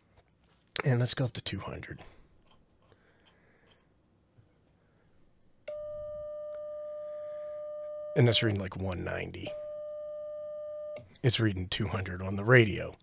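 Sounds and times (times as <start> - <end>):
faint handling sounds: 0.0 - 0.9
steady mid-pitched beep: 7.7 - 8.6.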